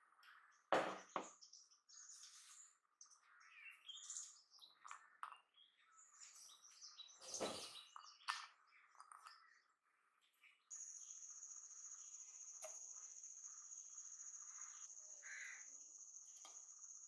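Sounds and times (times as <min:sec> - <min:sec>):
knock: 0:00.7 - 0:01.3.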